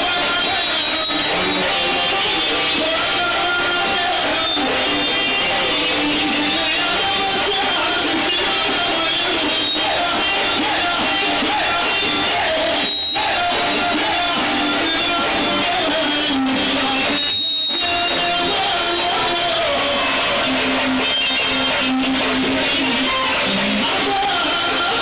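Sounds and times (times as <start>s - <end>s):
dance band playing amplified music: 0.0s - 25.0s.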